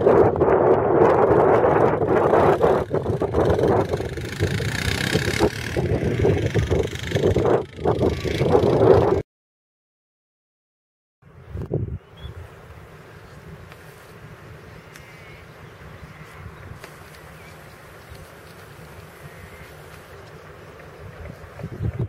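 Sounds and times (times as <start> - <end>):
quad bike engine running: 0.9 - 9.2.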